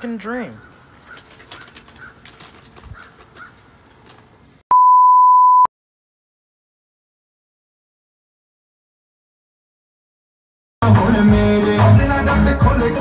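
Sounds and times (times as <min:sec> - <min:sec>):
electronic beep: 0:04.7 - 0:05.7.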